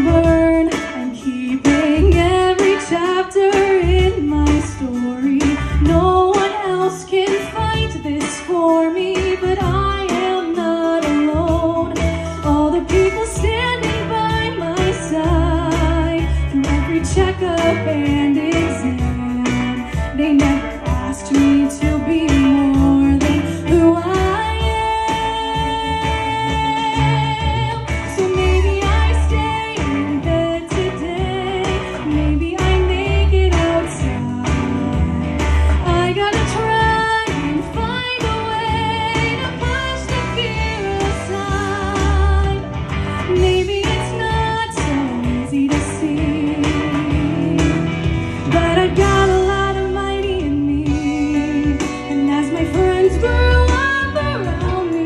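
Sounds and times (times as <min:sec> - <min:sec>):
guitar and bass accompaniment: 0:00.0 - 0:55.0
woman singing pop song: 0:00.0 - 0:55.0.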